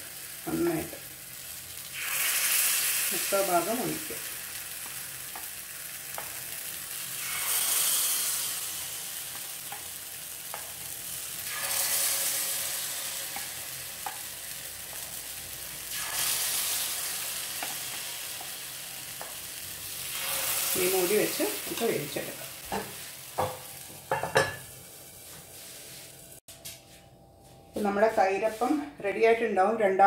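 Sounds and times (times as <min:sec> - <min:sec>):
batter sizzling in hot pan: 0:00.0 - 0:26.4.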